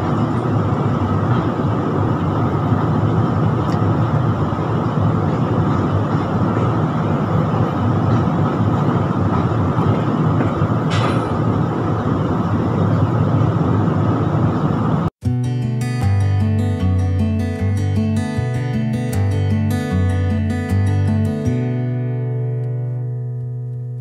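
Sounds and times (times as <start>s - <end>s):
acoustic guitar music: 0.0s - 13.1s, 15.2s - 24.0s
wind rushing over microphone: 0.0s - 15.1s.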